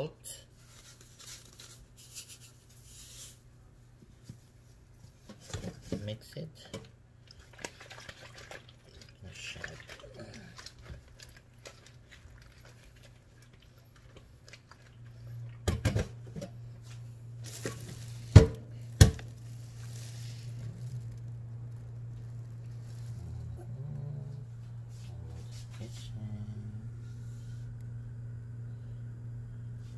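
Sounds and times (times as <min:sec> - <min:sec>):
low steady hum: 0:00.0 - 0:29.9
wet hand rustling in colander: 0:16.8 - 0:23.3.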